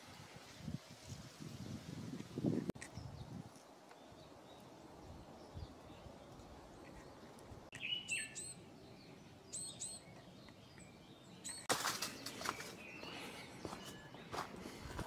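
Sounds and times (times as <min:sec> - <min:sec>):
birds calling high notes: 0:07.7 - 0:15.0
rustling with crunches: 0:11.6 - 0:15.0.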